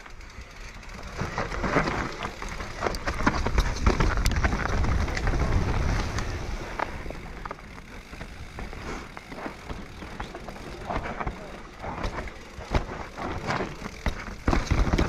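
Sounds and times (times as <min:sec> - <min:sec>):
bike frame and chain rattling: 0:00.0 - 0:15.0.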